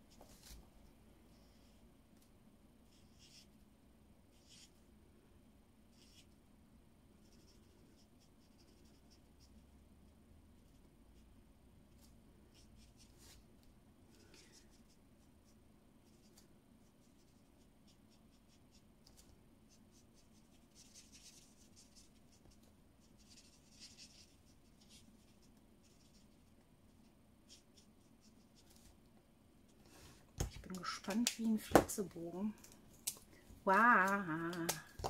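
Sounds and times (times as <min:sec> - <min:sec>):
marker scratching on card: 0:17.1 - 0:26.4.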